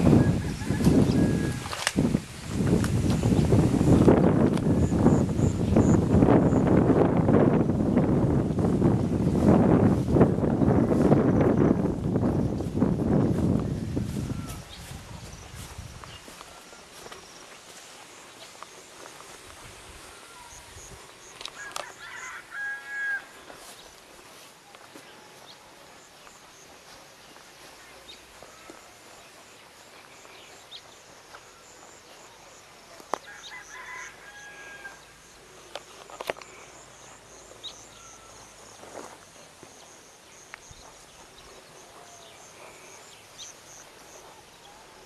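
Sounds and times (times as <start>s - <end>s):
rooster crowing: 0.0s - 1.9s, 14.1s - 14.9s, 21.6s - 23.7s, 33.2s - 35.2s.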